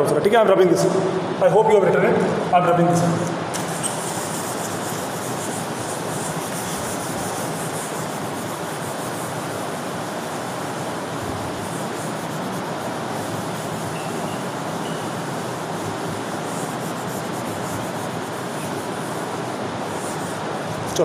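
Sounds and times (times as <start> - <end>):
duster rubbing on whiteboard: 3.5 - 21.0.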